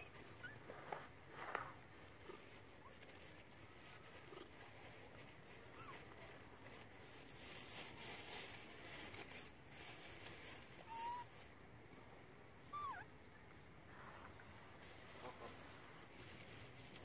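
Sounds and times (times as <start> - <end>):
faint animal calls: 10.7 - 11.5, 12.7 - 13.2.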